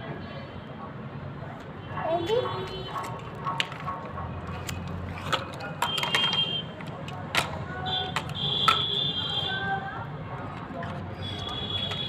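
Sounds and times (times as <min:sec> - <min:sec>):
plastic toys knocking and clicking: 0:02.3 - 0:09.3, 0:10.4 - 0:12.0.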